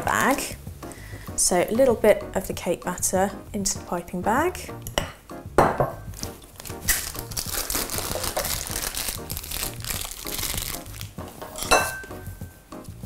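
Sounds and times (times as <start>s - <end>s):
plastic piping bag crinkling: 0.0s - 0.6s, 6.1s - 11.4s.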